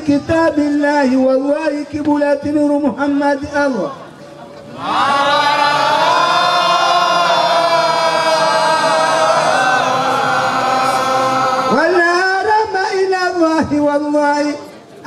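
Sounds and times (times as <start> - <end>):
men chanting together: 4.8 - 11.7.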